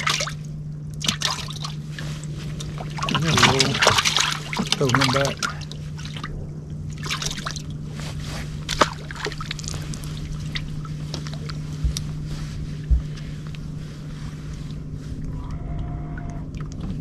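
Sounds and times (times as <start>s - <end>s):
low hum: 0.0s - 17.0s
water lapping around boat: 0.0s - 17.0s
dull bumps: 11.6s - 13.4s.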